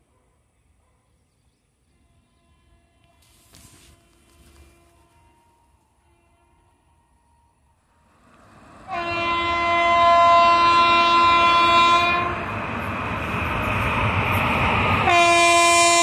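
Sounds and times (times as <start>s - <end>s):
train rumble: 7.0s - 16.0s
locomotive horn blast: 8.9s - 12.4s, 15.0s - 16.0s.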